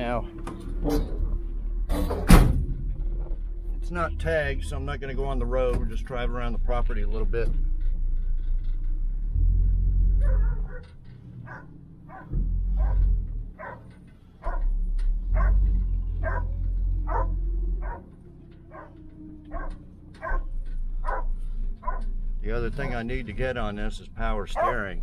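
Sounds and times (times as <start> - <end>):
car engine rumbling: 0.0 - 25.0
dog barking: 10.2 - 14.7, 15.3 - 18.1, 18.7 - 22.1, 24.5 - 25.0.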